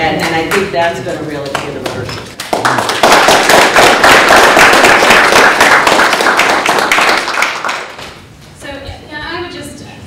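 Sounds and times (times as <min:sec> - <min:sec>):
audience applause: 0:02.4 - 0:08.1.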